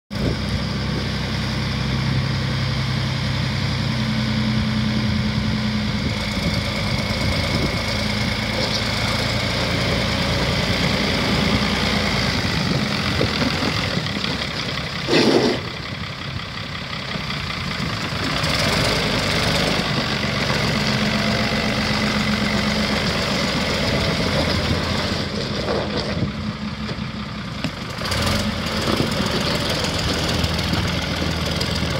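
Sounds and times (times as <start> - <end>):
tractor diesel engine running: 0.1 - 31.9.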